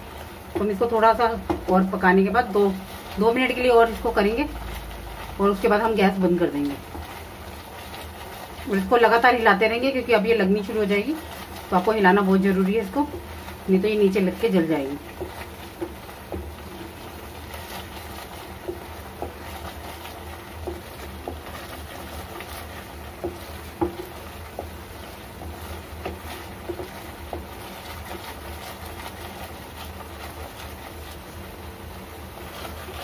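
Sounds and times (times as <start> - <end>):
spatula scraping and knocking pan: 0.0 - 33.0.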